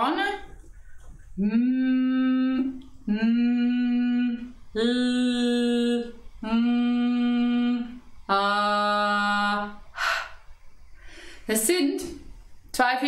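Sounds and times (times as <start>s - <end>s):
woman singing vocal warm-up: 1.4s - 10.4s.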